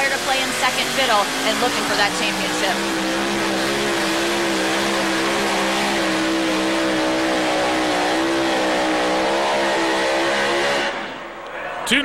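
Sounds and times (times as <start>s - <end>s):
high-pitched engine drone: 0.0s - 9.1s.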